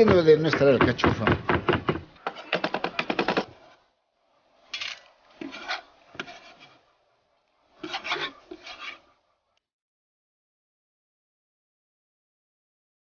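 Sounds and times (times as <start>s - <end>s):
knife scraping on wooden board: 4.8s - 6.8s, 7.8s - 9.1s.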